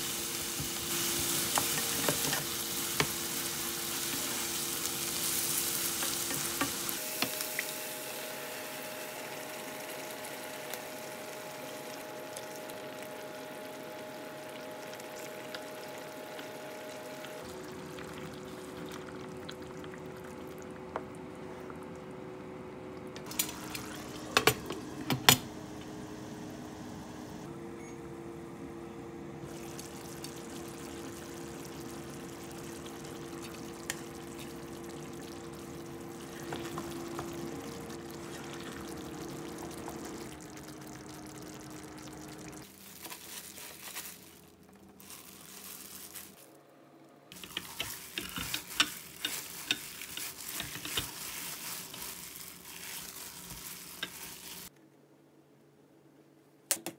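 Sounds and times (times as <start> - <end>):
sauce sizzling in a frying pan: 0.0 - 20.4, 29.5 - 42.7, 47.3 - 54.7
gloved hands kneading meat: 42.6 - 46.4, 47.3 - 54.7.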